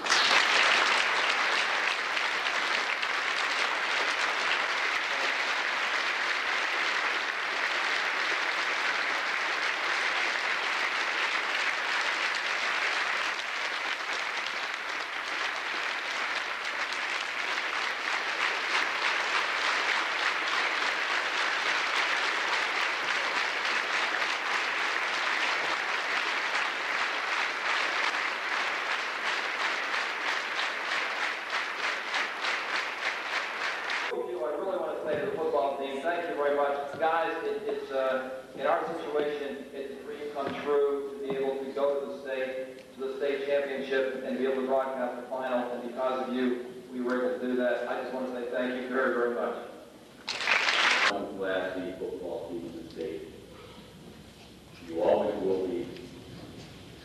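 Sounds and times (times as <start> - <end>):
audience applause: 0.0 - 34.2, 50.2 - 51.2.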